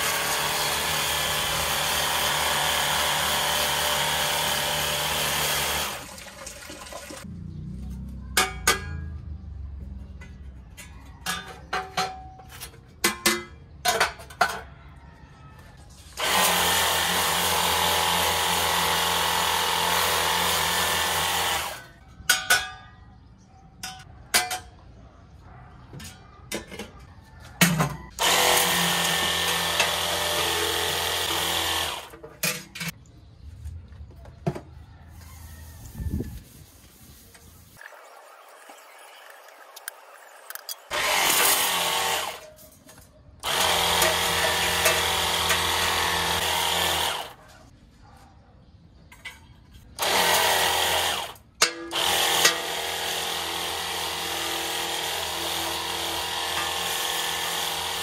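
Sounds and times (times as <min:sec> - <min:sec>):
pump whirring: 0:00.0 - 0:07.3, 0:16.1 - 0:21.9, 0:28.1 - 0:32.9, 0:37.8 - 0:42.5, 0:43.4 - 0:47.4, 0:50.0 - 0:58.0.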